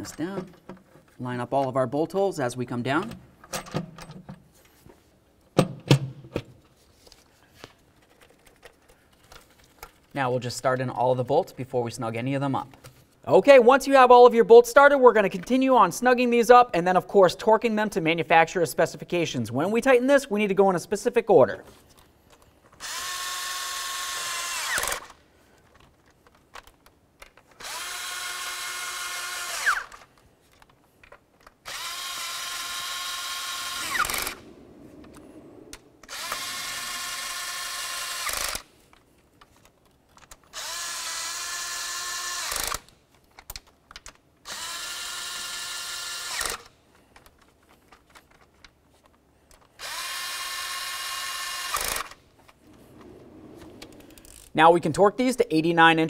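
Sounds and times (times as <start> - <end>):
cordless drill motor whine: 22.8 - 25.1, 27.6 - 30.0, 31.7 - 35.4, 36.0 - 38.6, 40.6 - 42.7.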